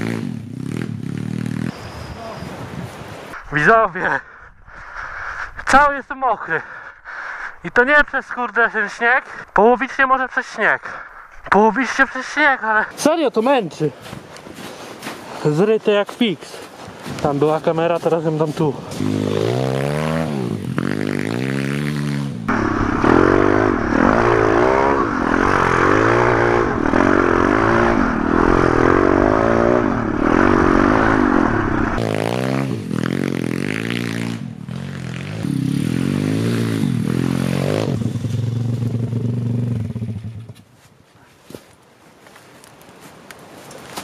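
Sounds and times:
motorbike engine revving: 0:00.0 - 0:02.4, 0:18.9 - 0:40.6.

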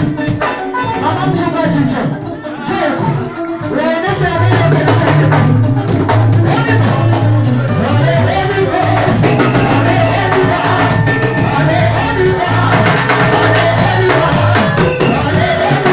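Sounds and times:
drum kit beat: 0:00.0 - 0:01.9, 0:03.0 - 0:15.9
bass guitar: 0:00.0 - 0:15.9
keyboard: 0:00.0 - 0:15.9
woman singing lead: 0:06.5 - 0:15.9.

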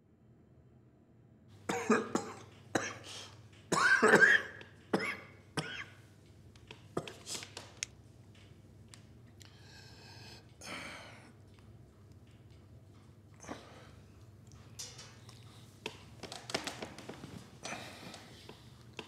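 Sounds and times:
man coughing: 0:01.7 - 0:06.0.

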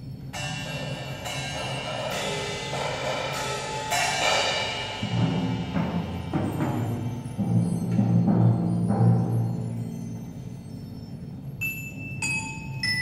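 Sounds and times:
ringing metallic strikes: 0:00.0 - 0:13.0
timpani rolling: 0:00.4 - 0:10.6.

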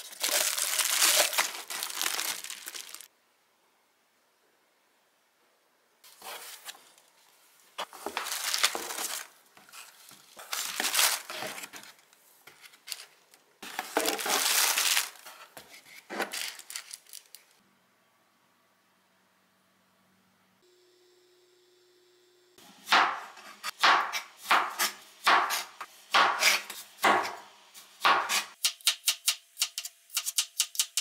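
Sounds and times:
bubble wrap crinkling: 0:00.0 - 0:03.1, 0:07.8 - 0:12.1, 0:12.7 - 0:17.6.

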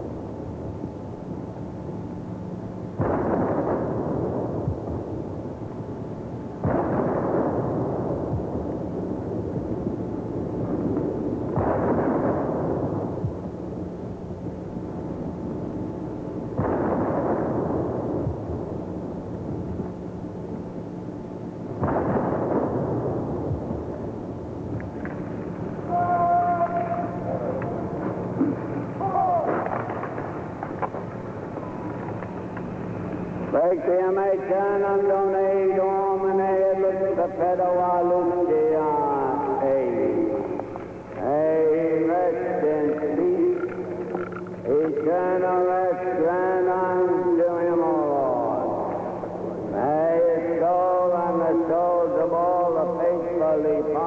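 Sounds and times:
cannon booms: 0:03.0 - 0:05.2, 0:06.6 - 0:13.6, 0:16.4 - 0:19.9, 0:21.7 - 0:25.9, 0:26.6 - 0:32.2.

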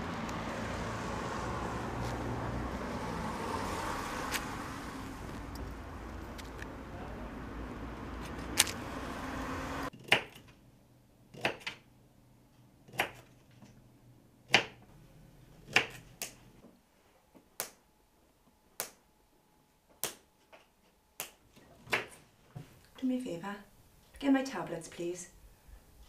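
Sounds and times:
low traffic hum: 0:00.0 - 0:09.9.

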